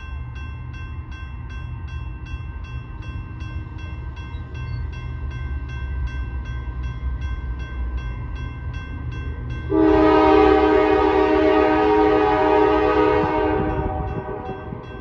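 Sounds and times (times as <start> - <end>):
crossing bell ringing: 0.0 - 15.0
locomotive air horn blowing: 9.7 - 14.9.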